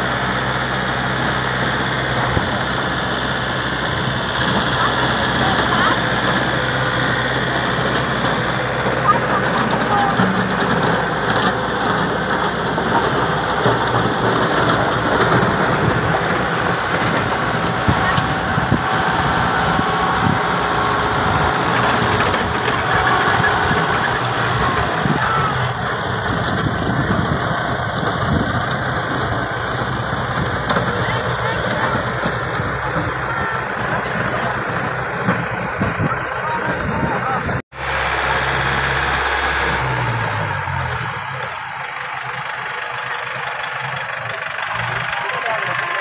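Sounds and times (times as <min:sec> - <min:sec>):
tractor engine running: 0:00.0 - 0:46.0
background voices: 0:02.1 - 0:37.6.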